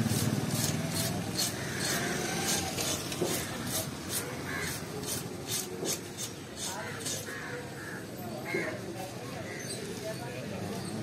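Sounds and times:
scaler scraping fish scales: 0.0s - 7.3s.

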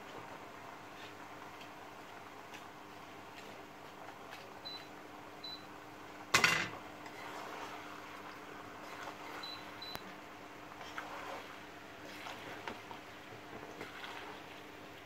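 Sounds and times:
wooden spoon stirring in metal pot: 7.0s - 9.9s, 10.7s - 15.0s.

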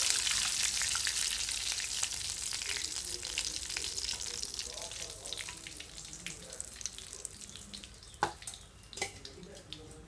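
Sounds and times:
hot oil sizzling: 0.0s - 10.0s.

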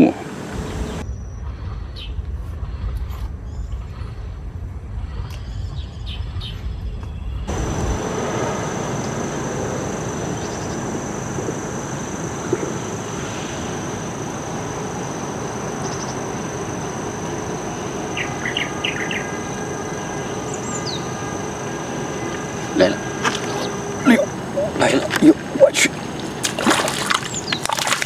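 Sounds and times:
outdoor background rush: 0.0s - 28.0s
thin high whine: 7.5s - 26.0s
bird chirps: 18.1s - 21.2s.

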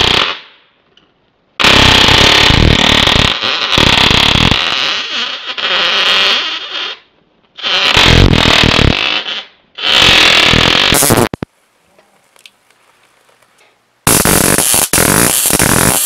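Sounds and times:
electric arc buzzing and crackling: 1.6s - 6.2s, 7.6s - 13.4s, 14.0s - 16.0s.

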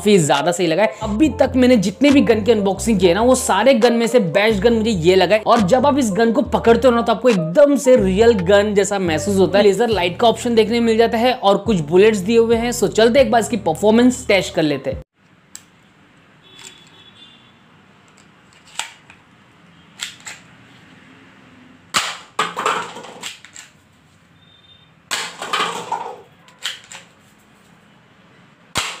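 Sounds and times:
toy pistol snapping shots: 21.9s - 22.3s, 28.7s - 29.0s
paper cups clattering: 22.4s - 23.7s, 25.2s - 27.2s.

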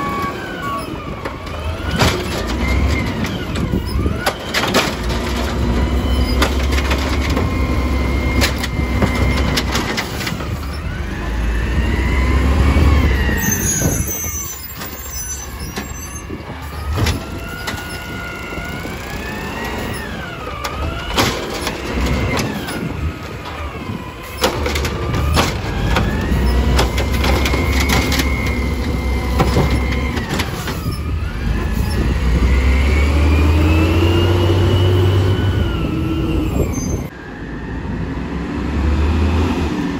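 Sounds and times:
truck engine revving: 0.0s - 15.7s, 16.3s - 37.1s, 38.2s - 39.9s
hydraulic whine: 0.0s - 37.2s
bin and arm clanking: 20.6s - 31.0s.

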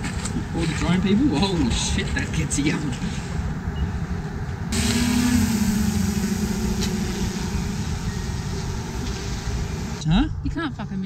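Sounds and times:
drone propellers humming: 4.7s - 10.0s.

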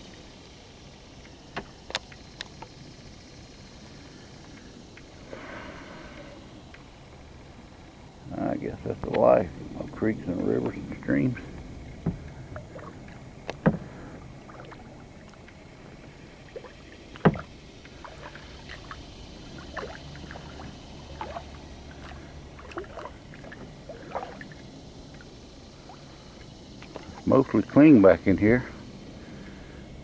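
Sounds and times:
water drips and splashes: 8.7s - 27.8s
sharp knocks on kayak hull: 12.0s - 12.3s, 13.5s - 13.9s, 17.2s - 17.5s.

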